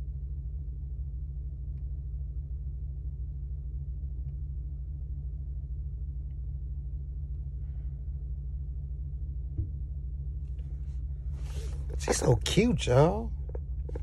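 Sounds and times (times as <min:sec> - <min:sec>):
vehicle engine idling: 0:00.9 - 0:14.0.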